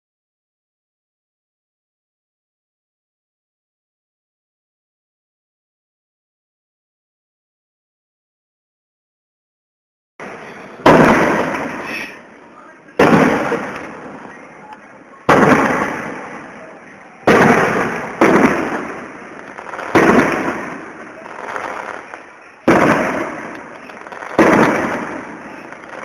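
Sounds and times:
firework shells bursting: 10.2s - 12.2s, 13.0s - 26.0s.

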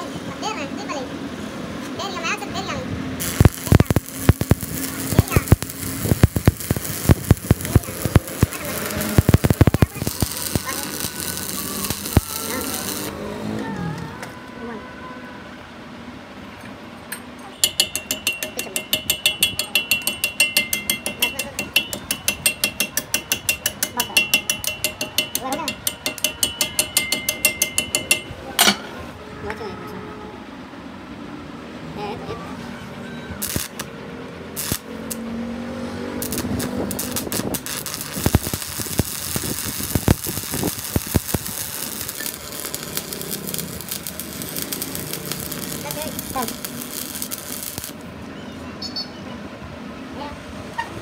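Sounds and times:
chipping hammer tapping metal: 3.2s - 13.1s, 17.6s - 28.8s, 36.2s - 48.0s
sharp welding pops: 3.2s - 13.2s, 33.4s - 33.9s, 34.6s - 35.3s, 36.2s - 48.0s
arc welding crackling sizzle: 3.2s - 13.6s, 33.4s - 33.9s, 34.5s - 35.3s, 36.0s - 48.1s.

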